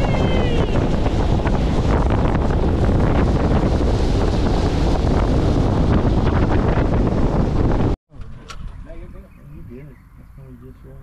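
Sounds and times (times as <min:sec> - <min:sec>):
water rushing along hull: 0:00.0 - 0:08.0
wind buffeting microphone: 0:00.0 - 0:11.0.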